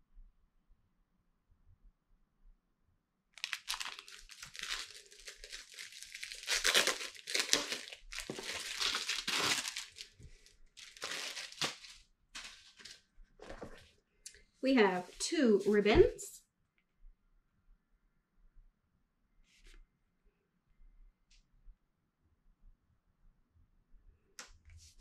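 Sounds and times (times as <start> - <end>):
packaging crinkling and tearing: 3.4 - 13.0.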